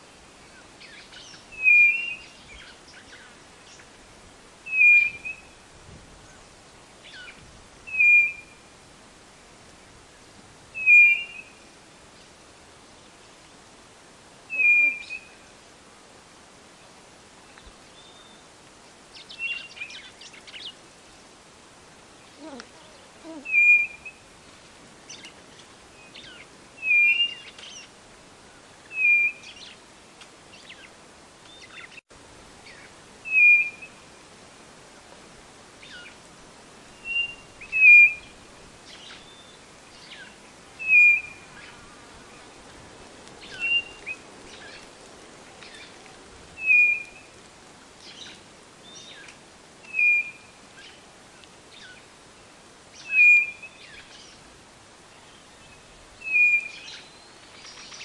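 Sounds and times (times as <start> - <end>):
bird whistled call: 1.5 - 2.4, 4.7 - 5.6, 7.9 - 8.6, 10.8 - 11.6, 14.5 - 15.4, 23.4 - 24.2, 26.0 - 27.8, 28.9 - 29.7, 32.7 - 34.0, 37.0 - 38.3, 39.0 - 41.7, 43.4 - 44.8, 46.6 - 47.3, 49.9 - 50.5, 53.0 - 54.1, 56.2 - 58.0.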